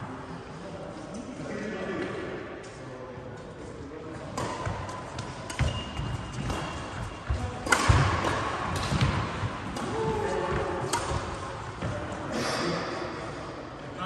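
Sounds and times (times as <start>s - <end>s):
rackets hitting shuttlecock: 4.3s - 12.0s.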